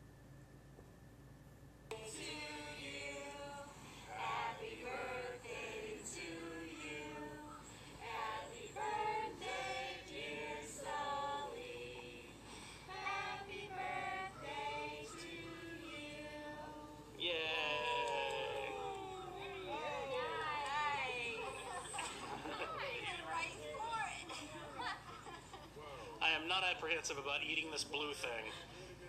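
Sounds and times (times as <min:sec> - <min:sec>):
singing through a small speaker: 0:01.9 - 0:22.8.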